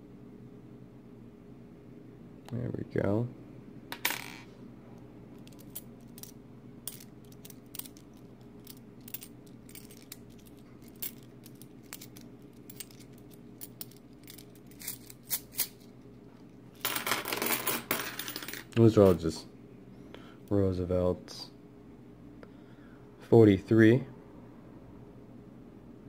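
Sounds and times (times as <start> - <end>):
coins clicking and clinking: 3.9 - 4.5, 5.4 - 15.9, 16.8 - 19.2
coins spilling onto table: 4.0 - 4.5, 16.8 - 18.7.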